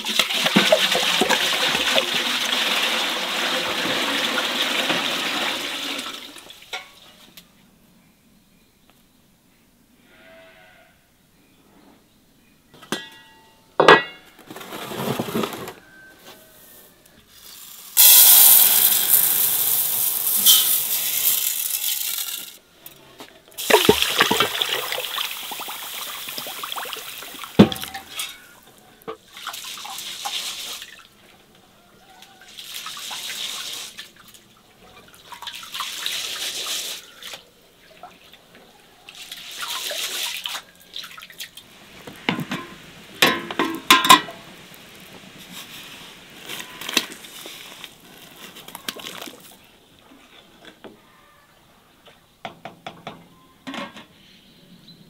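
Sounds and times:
water pouring and splashing: 0:00.0 - 0:07.2, 0:17.4 - 0:22.6, 0:23.6 - 0:28.6, 0:29.2 - 0:31.4, 0:32.4 - 0:38.4, 0:39.1 - 0:49.6.

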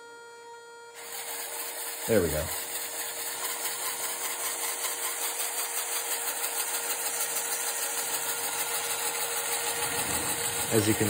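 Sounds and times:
plastic gear rattle: 0:01.0 - 0:11.0
toy electric motors whirring: 0:01.0 - 0:11.0.

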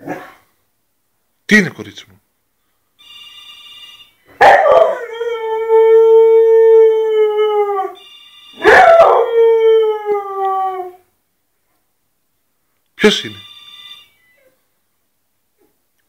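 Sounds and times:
telephone ringing: 0:03.0 - 0:04.3, 0:08.0 - 0:08.7, 0:13.1 - 0:14.6
dog howling: 0:08.6 - 0:11.0.

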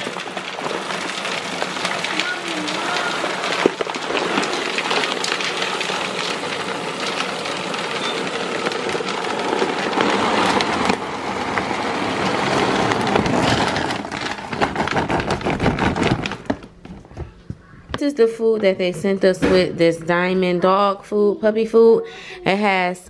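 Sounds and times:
kibble rattling into plastic bin: 0:00.0 - 0:17.3.

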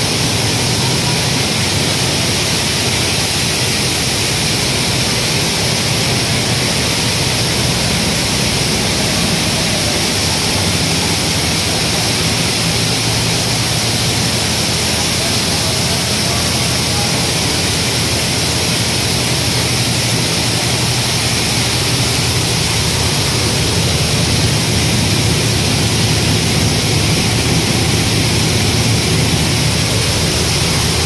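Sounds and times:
machinery noise: 0:00.0 - 0:31.0.

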